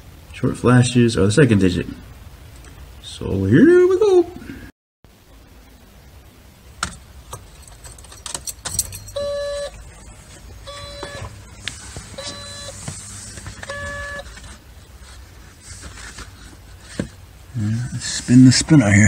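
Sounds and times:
handling rustle: 6.9 - 17.2
car warning chime beeps: 9.0 - 9.8, 10.6 - 11.3, 12.2 - 12.8, 13.7 - 14.3.

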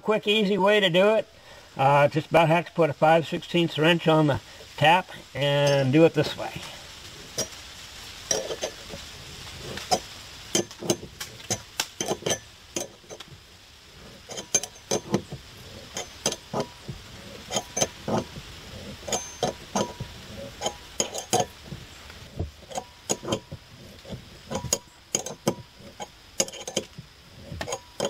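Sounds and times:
wrench clicking metal on metal: 9.9 - 13.3, 14.3 - 18.3, 20.6 - 21.6, 22.7 - 23.5, 24.5 - 27.0.

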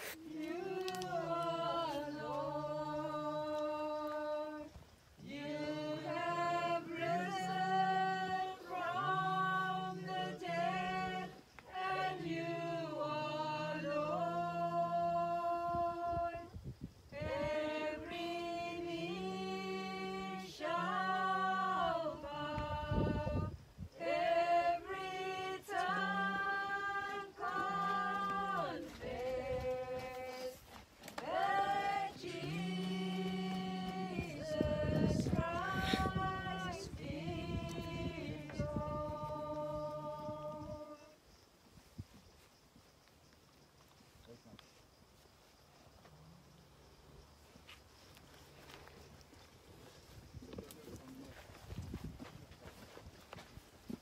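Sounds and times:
group singing a hymn unaccompanied: 0.0 - 41.2.

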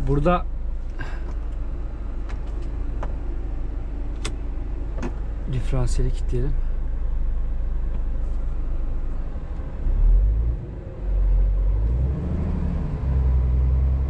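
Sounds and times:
truck diesel engine rumbling: 0.0 - 14.0.

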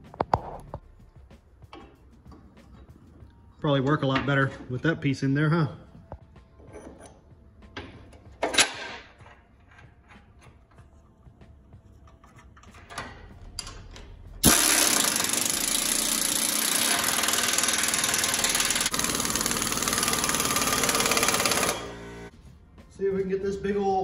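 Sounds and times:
air impact wrench hammering: 14.4 - 22.3.

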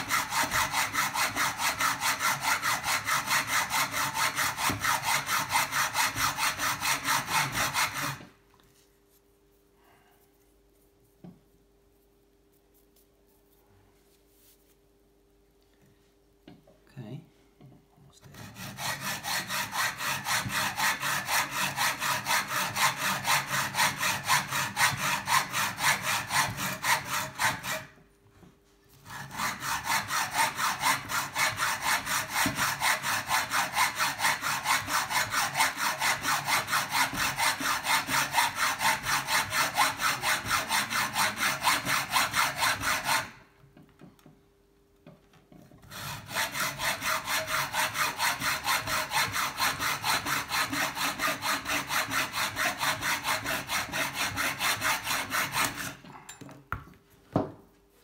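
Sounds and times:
hacksaw cutting metal: 0.0 - 8.3, 18.4 - 28.0, 29.0 - 43.4, 45.8 - 56.3.

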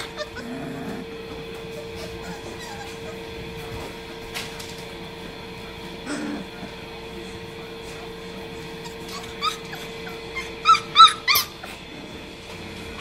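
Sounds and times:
puppies yipping: 0.0 - 3.6, 8.8 - 11.9.

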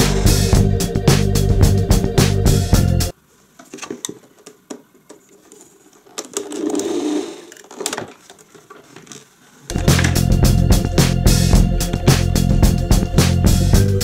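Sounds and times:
rubbing grinding sound: 5.4 - 10.2.

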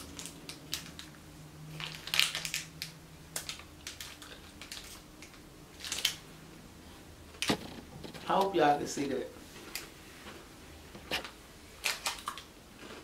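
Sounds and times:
snack and plastic wrapper crackling: 0.0 - 6.2, 11.8 - 13.0.

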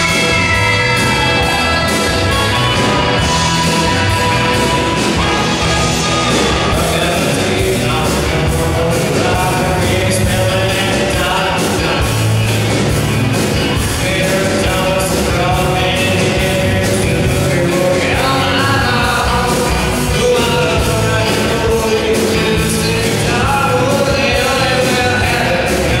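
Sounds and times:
saxophones: 0.0 - 7.9
drum beat: 0.0 - 26.0
electric guitar: 0.0 - 26.0.

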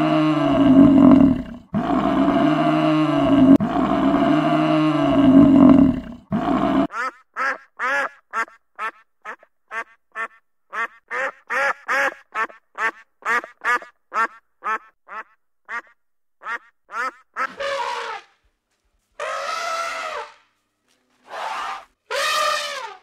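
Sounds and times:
duck quacking: 6.9 - 18.1.

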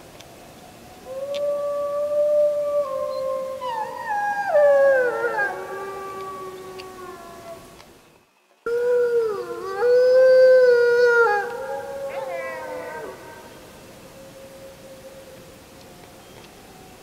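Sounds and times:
wolves howling: 1.1 - 7.6, 8.7 - 15.5.

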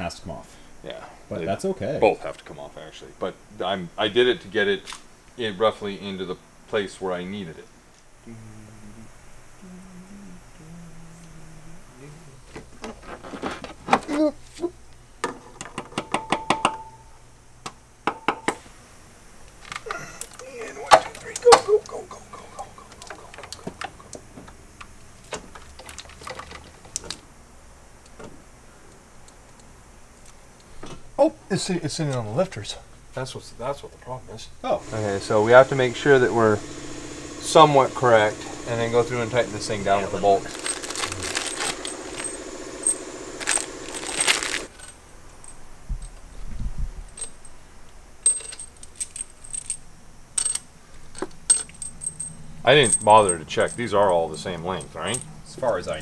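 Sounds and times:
metal bolts clinking: 48.2 - 55.4.

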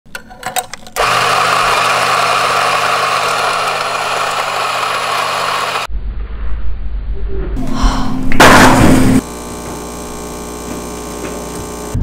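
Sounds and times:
electric coffee grinder: 1.0 - 5.9, 9.2 - 12.0.

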